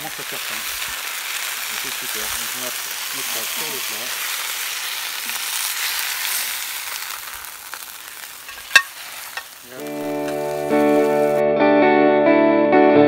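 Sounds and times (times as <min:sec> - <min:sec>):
fish sizzling on hot plate: 0:00.0 - 0:11.4
spatula clink: 0:08.4 - 0:11.0
guitar music: 0:09.7 - 0:13.0.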